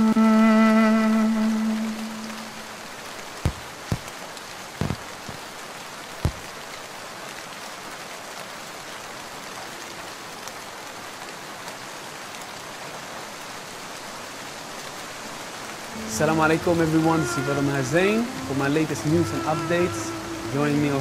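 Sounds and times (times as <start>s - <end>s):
steady rain falling: 0.0s - 21.0s
dull thuds: 3.5s - 4.1s, 4.8s - 5.4s, 6.2s - 6.5s.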